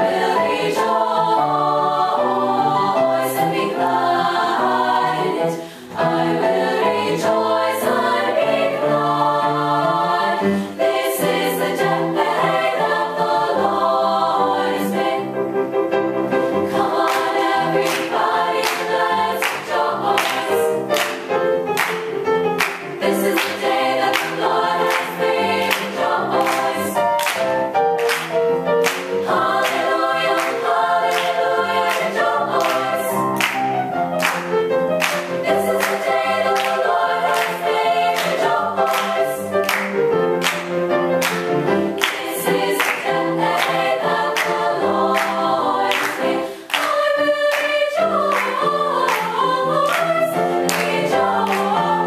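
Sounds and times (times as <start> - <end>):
girls' choir singing: 0.0 - 52.0.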